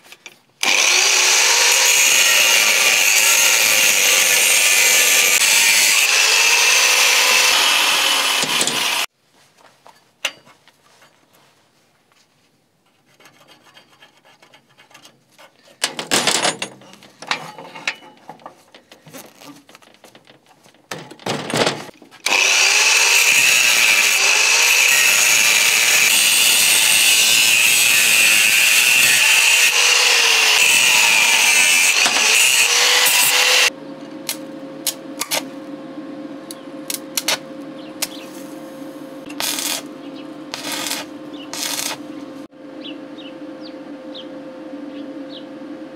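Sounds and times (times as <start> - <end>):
angle grinder cutting steel: 0.6 - 9.1, 22.2 - 33.7, 39.2 - 39.9, 40.5 - 42.0.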